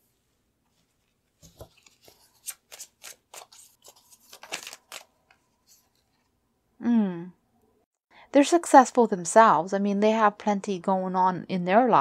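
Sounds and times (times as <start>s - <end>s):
cards being shuffled: 1.0s - 6.2s.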